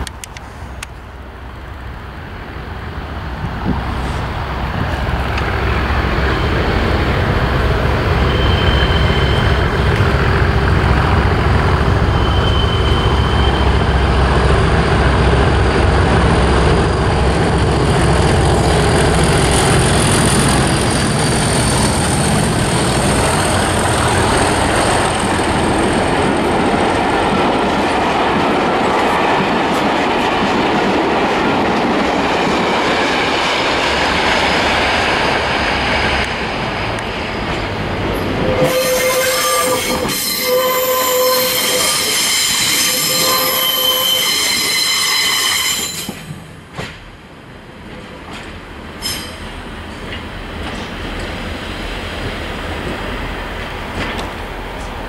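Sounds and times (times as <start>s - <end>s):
diesel locomotive engine rumble: 0.0s - 55.0s
high whistle-like tone: 8.0s - 9.8s, 12.0s - 13.9s, 38.4s - 46.2s.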